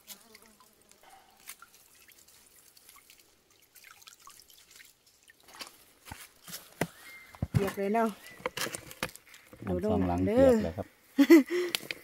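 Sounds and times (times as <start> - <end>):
water dripping and trickling: 0.0 - 6.7.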